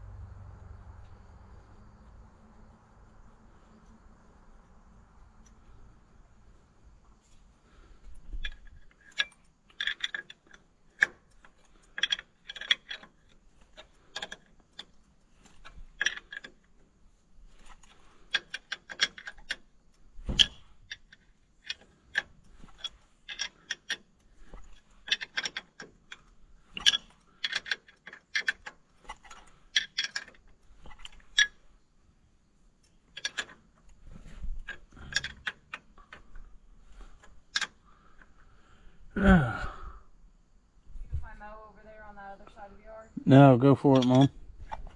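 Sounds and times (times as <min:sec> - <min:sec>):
wrench clinking on bolts: 0:08.1 - 0:16.8, 0:17.5 - 0:31.7, 0:32.8 - 0:38.4, 0:43.8 - 0:44.9.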